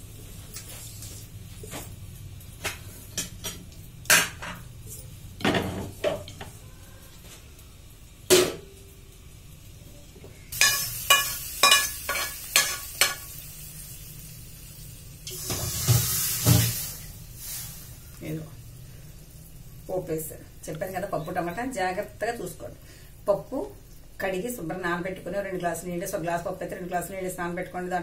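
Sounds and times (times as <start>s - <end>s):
oil sizzling: 0.0s - 28.0s
steel pots and lids clanking: 10.5s - 13.3s.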